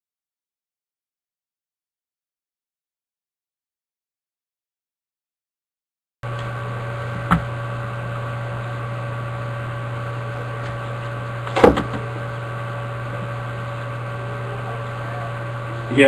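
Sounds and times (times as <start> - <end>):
electrical mains hum: 6.2 - 16.0.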